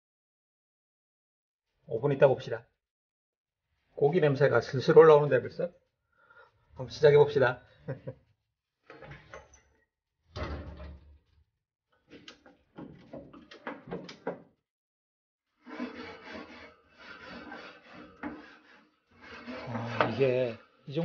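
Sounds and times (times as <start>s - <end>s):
wire brush scraping grill grates: 15.6s - 20.5s.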